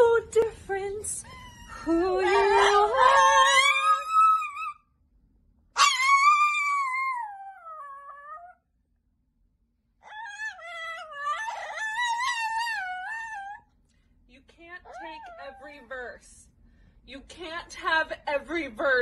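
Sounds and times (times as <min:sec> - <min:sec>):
small dog howling: 0:01.3 - 0:04.8, 0:05.8 - 0:08.6, 0:10.0 - 0:13.6
woman singing: 0:01.8 - 0:03.6.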